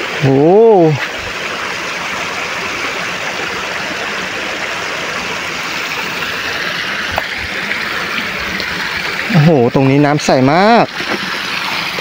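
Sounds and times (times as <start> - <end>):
stream rushing over rocks: 0.0 - 12.0.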